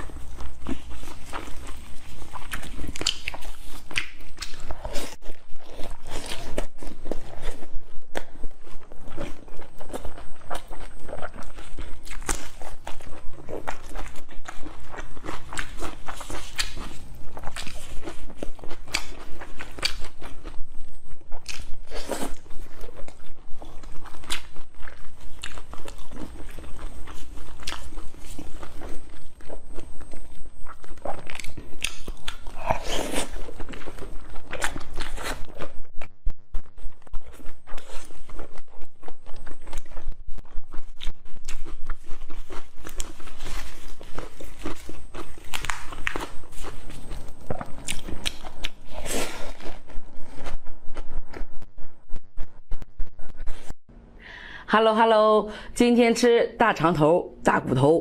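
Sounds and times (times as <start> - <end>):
crisp lettuce crunching: 0.0 - 35.8, 37.0 - 51.6
chewing and biting: 0.0 - 51.7
crisp crunches: 40.6 - 51.5.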